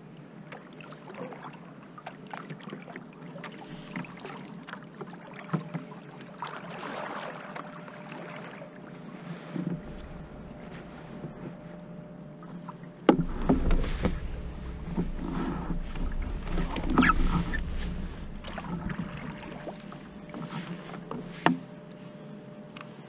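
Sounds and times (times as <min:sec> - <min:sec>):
paddle splashing in water: 0:00.5 - 0:08.6, 0:12.4 - 0:21.7
wind rumble on microphone: 0:09.6 - 0:12.2, 0:13.1 - 0:21.8.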